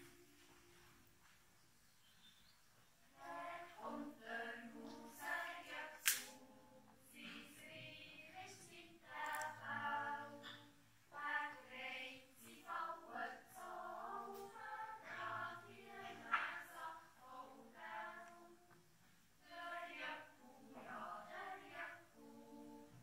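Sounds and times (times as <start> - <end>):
children's choir yodelling: 11.2 - 18.6.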